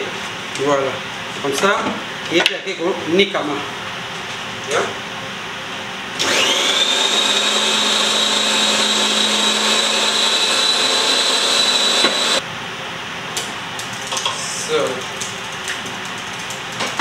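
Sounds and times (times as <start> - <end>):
blender motor whining: 6.2 - 12.4.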